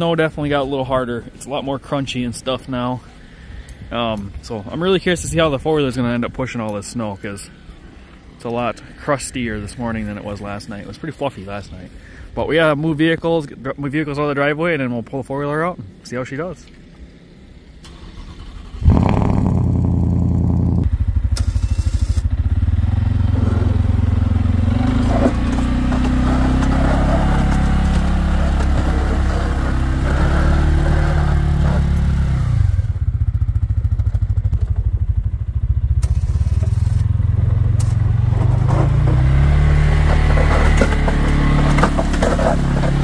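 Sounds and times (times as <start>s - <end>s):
atv engine running under load: 18.5s - 43.0s.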